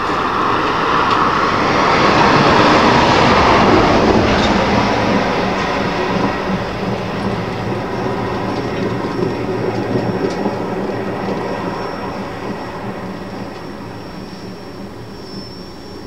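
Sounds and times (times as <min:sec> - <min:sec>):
freight cars rumbling and clattering: 0:00.0 - 0:16.0
faint high whine: 0:07.7 - 0:16.0.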